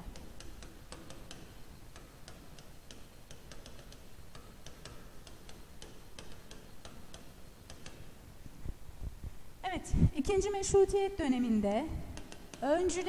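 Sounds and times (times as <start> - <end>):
background hiss: 0.0 - 13.0
stylus tapping on tablet screen: 0.1 - 8.2, 12.0 - 13.0.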